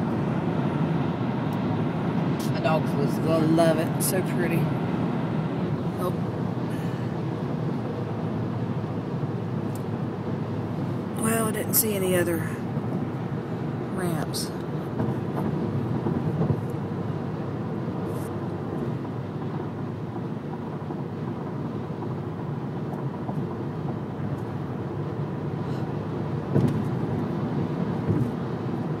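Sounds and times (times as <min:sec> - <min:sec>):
car road and engine noise: 0:00.0 - 0:29.0
car bump: 0:26.5 - 0:27.0, 0:28.0 - 0:28.4.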